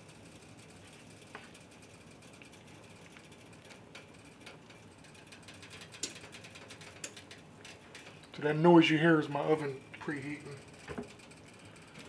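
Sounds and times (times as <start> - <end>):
oven clicking: 3.8 - 11.9.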